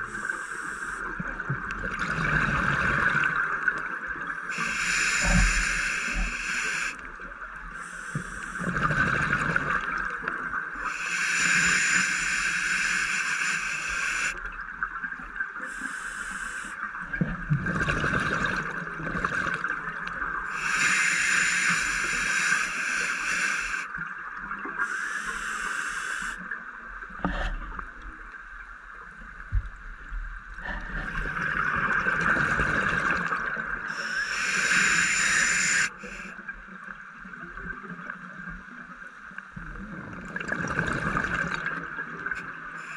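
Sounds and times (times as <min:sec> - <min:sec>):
steady underwater hiss: 0:00.0 - 0:42.9
exhaled bubbles underwater: 0:01.1 - 0:12.1, 0:16.8 - 0:22.6, 0:30.5 - 0:35.9, 0:39.6 - 0:42.9.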